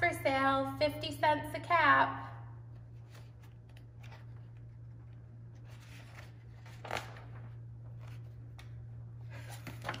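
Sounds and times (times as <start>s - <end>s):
steady low hum: 0.0s - 10.0s
paper rustling: 2.8s - 10.0s.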